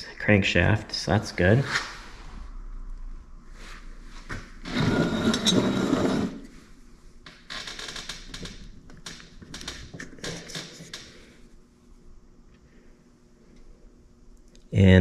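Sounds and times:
metal scraping: 4.6 - 6.6.

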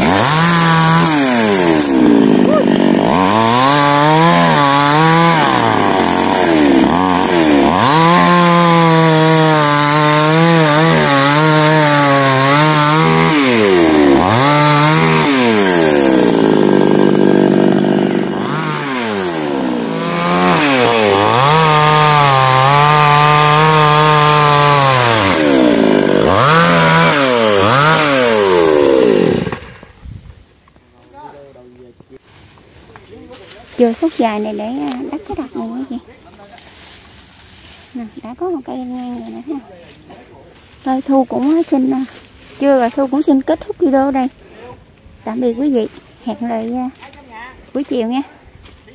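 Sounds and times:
chainsaw cutting wood: 0.0 - 30.0.

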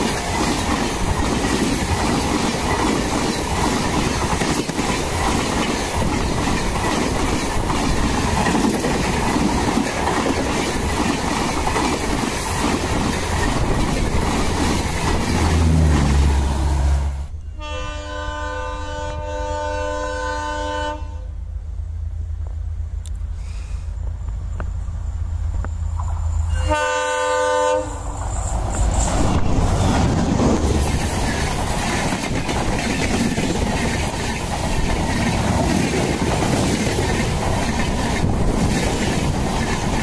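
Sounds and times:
wheels clattering over rail joints: 0.0 - 16.6, 28.2 - 40.0
locomotive horn blast: 15.4 - 21.4, 26.5 - 28.0.

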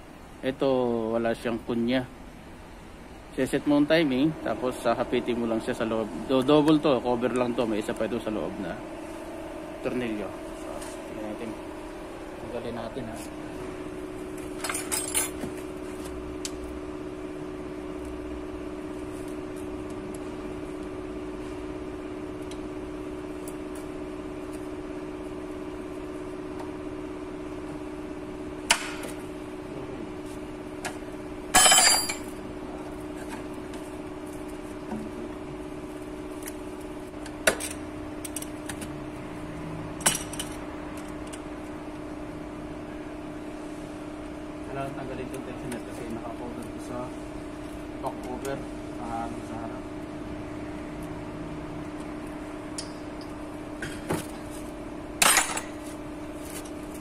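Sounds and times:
steady hum: 0.0 - 57.0
tools clinking on metal: 31.6 - 32.3.

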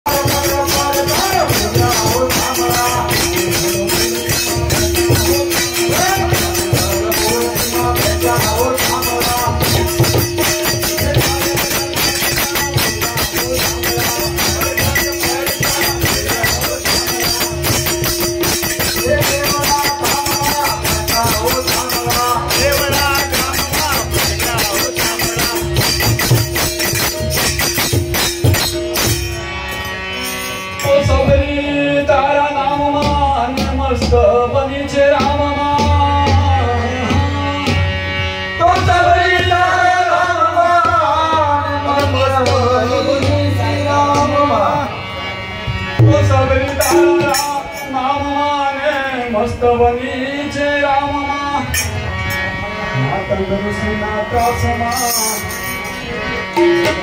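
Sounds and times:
person singing: 0.1 - 27.0, 46.0 - 51.9
harmonium drone: 0.1 - 57.0.

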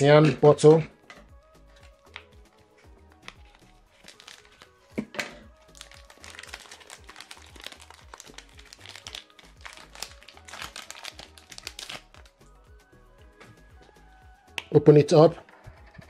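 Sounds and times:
background music with bass: 0.0 - 16.0
plastic bag crinkling: 3.3 - 4.7, 5.6 - 12.3.

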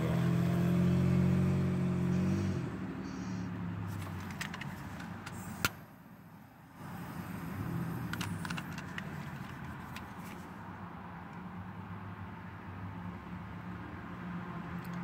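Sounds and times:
handling rattles: 3.9 - 5.6, 8.1 - 10.5.

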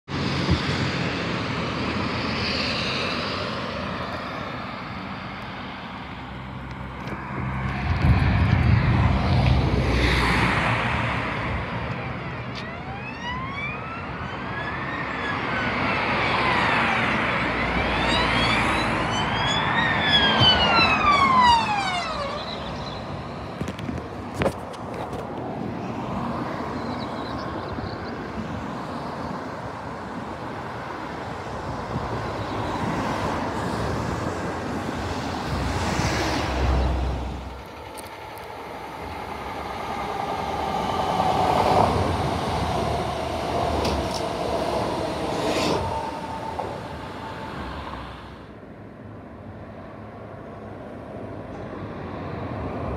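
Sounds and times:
vehicle passing with low rumble: 0.1 - 12.6
road traffic passing: 0.1 - 52.9
emergency siren wailing: 11.2 - 23.1, 37.6 - 48.5.

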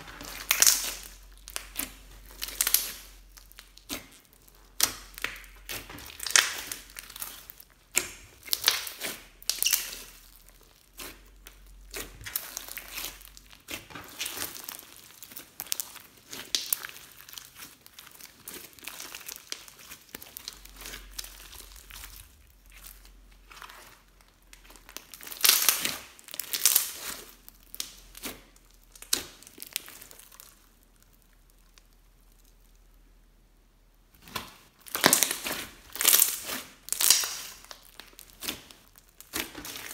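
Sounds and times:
slime crackling and popping: 0.0 - 33.2, 33.9 - 39.9.

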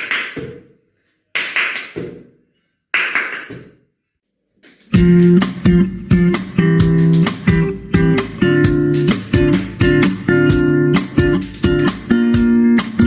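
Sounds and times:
strummed guitar music: 4.9 - 13.0.

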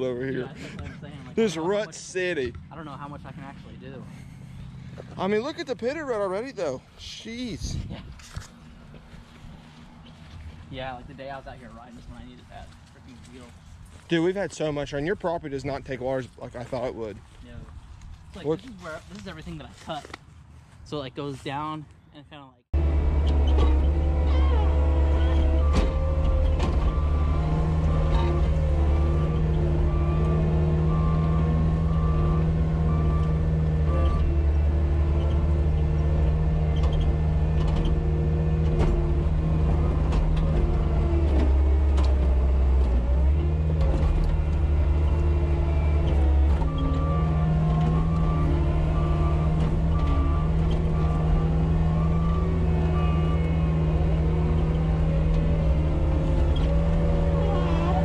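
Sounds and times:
diesel engine running: 0.0 - 17.4, 22.7 - 58.0
reversing alarm beeping: 24.2 - 34.4, 45.0 - 58.0.

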